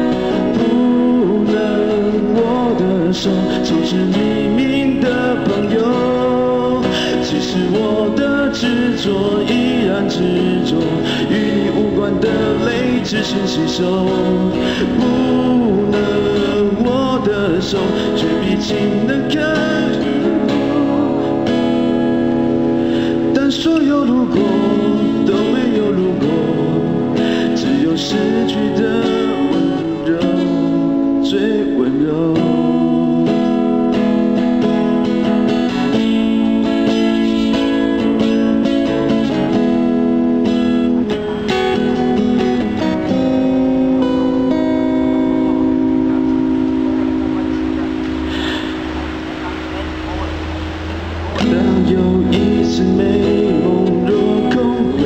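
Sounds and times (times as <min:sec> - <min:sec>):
man singing: 0:00.0 - 0:40.0, 0:51.1 - 0:55.0
acoustic guitar: 0:00.0 - 0:55.0.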